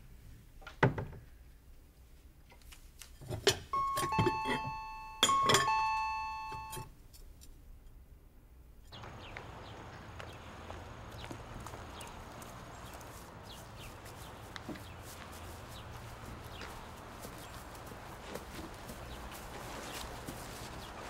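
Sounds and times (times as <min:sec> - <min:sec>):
two-tone doorbell chime: 0:03.7 - 0:06.9
dishes clinking: 0:03.8 - 0:06.8.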